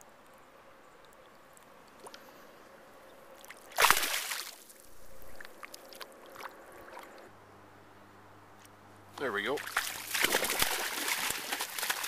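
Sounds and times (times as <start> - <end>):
small water ticks: 0.2 - 2.4, 3.3 - 7.3, 8.6 - 12.0
water sloshing: 3.4 - 7.3, 9.5 - 12.0
fish splashing into river: 3.7 - 4.7, 9.6 - 12.0.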